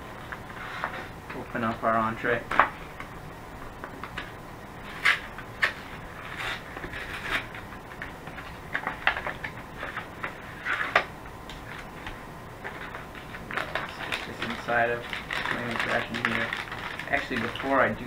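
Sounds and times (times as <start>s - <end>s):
foil packaging crinkling: 12.7s - 18.0s.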